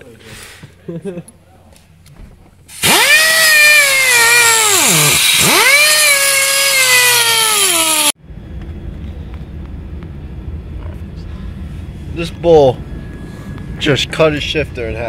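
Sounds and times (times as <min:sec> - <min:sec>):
power tool cutting metal: 0:02.7 - 0:08.2
low rumble: 0:08.2 - 0:15.0.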